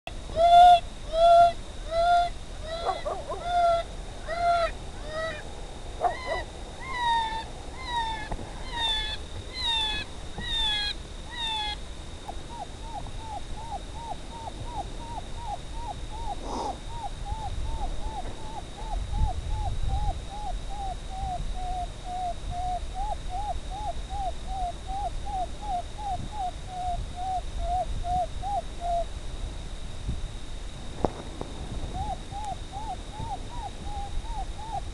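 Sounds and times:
faint high whine: 0.1 - 34.9
electronic animal distress cries: 0.3 - 11.8.

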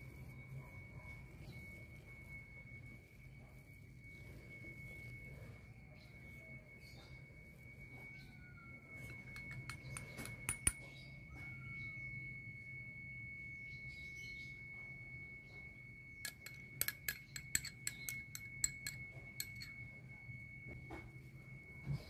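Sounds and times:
faint high whine: 0.0 - 22.0
glass bowls clinking: 9.0 - 11.0, 16.2 - 20.0.

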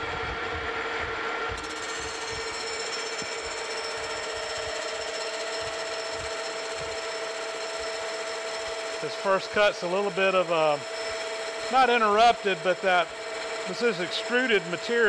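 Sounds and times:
lathe whine: 0.0 - 15.0.

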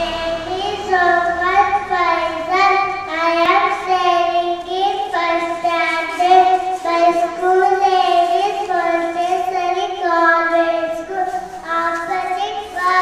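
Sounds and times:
child singing: 0.0 - 13.0.

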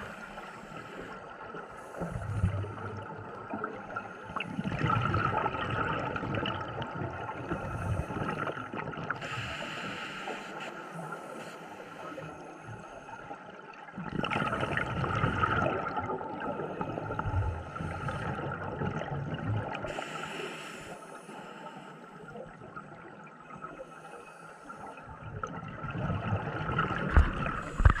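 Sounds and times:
exhaled air bubbling: 0.0 - 10.0, 10.6 - 20.9, 24.8 - 28.0
regulator inhalation hiss: 9.2 - 12.2, 19.9 - 22.2.

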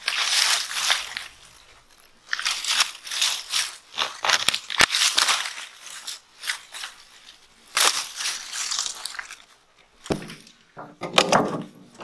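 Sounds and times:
loppers cutting cane stalks: 0.0 - 1.6, 2.3 - 9.4
dry leaves crackling: 0.0 - 10.6.

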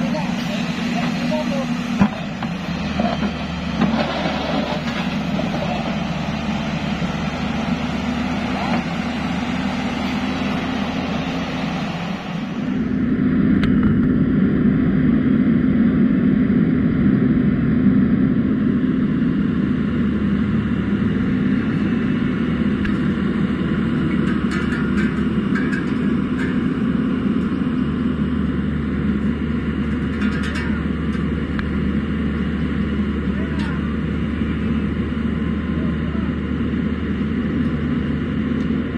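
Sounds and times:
excavator diesel engine under load: 0.0 - 14.4, 17.9 - 38.9.

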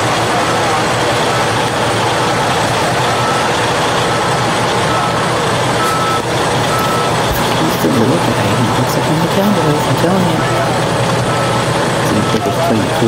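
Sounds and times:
machine engine running: 0.0 - 13.0
backup alarm beeping: 3.0 - 13.0.

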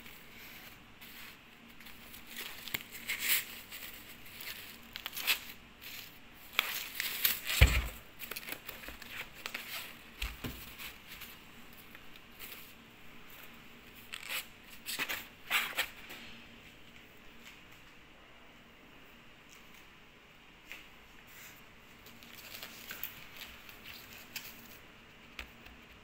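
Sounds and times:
wrapper crinkling and rustling: 0.0 - 16.0, 22.0 - 24.9.

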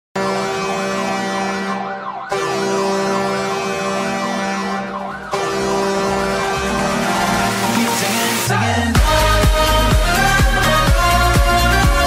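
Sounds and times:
arena horn low chord: 0.2 - 12.0
wavering police siren: 0.5 - 8.0.

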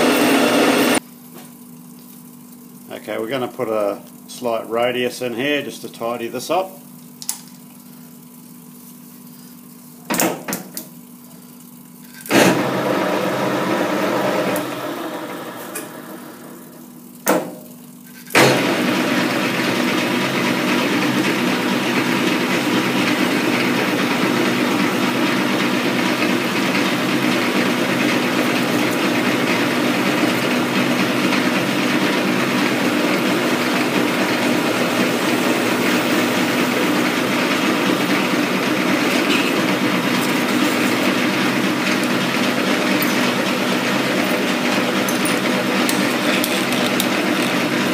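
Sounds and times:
metal lathe gear hum: 0.0 - 1.0, 18.6 - 47.9.

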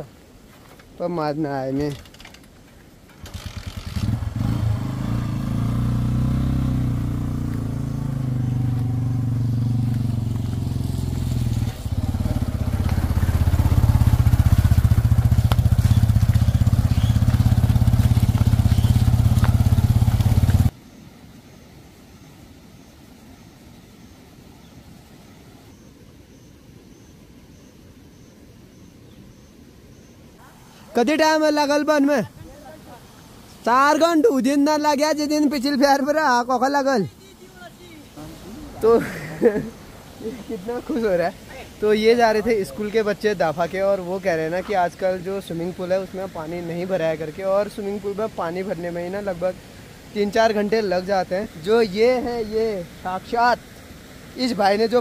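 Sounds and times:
faint outdoor background: 0.0 - 55.0
motorcycle engine pulling away: 3.1 - 20.7.

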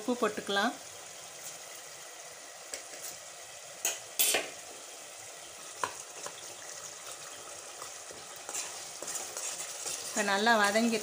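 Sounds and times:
gravy sizzling and bubbling: 0.0 - 11.0
spoon scraping pan: 5.7 - 11.0.

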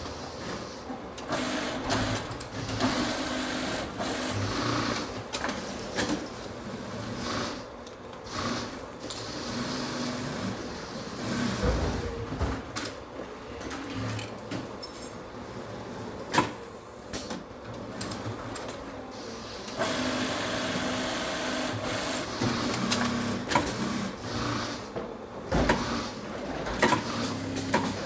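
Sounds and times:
machine hiss and hum: 0.0 - 12.2, 18.2 - 24.9
knocks and clatter of parts: 25.0 - 28.0.

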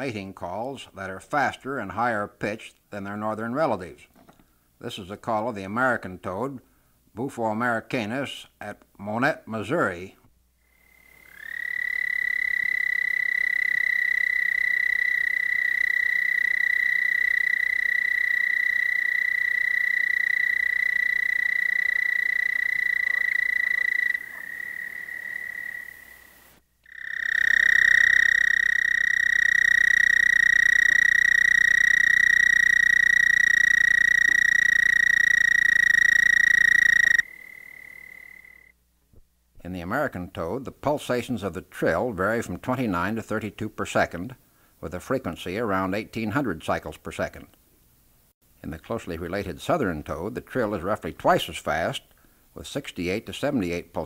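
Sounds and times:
toad trilling: 10.7 - 38.7.

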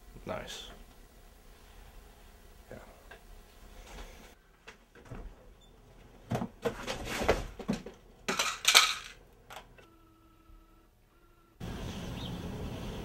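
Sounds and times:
clicks and knocks of objects: 6.3 - 9.9.

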